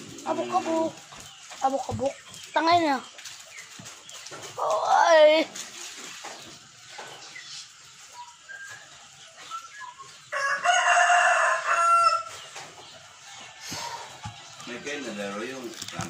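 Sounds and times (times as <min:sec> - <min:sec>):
rooster crowing: 0:10.2 - 0:12.4.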